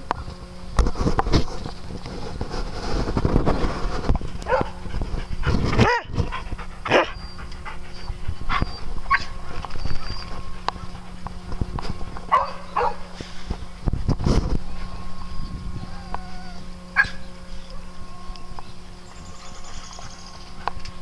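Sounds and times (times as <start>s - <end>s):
dogs panting: 1.6s - 14.0s, 19.0s - 21.0s
dog high vocal sounds: 6.8s - 9.3s.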